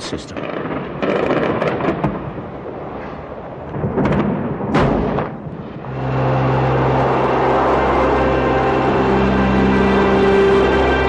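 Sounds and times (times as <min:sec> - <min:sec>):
explosion with long rumble: 0:00.3 - 0:05.9
low music drone: 0:05.8 - 0:11.0.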